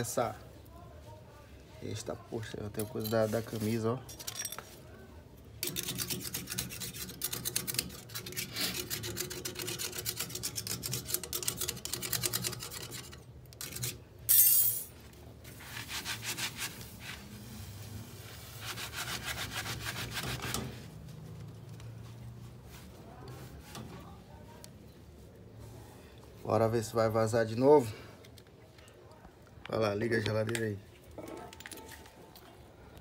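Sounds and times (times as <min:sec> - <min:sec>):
scraping on metal tubing: 0:05.6 - 0:14.0, 0:18.4 - 0:20.9.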